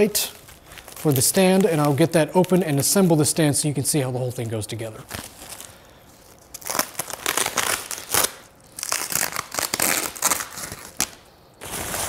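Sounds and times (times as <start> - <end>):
plastic bag crinkling: 0.0 - 3.4.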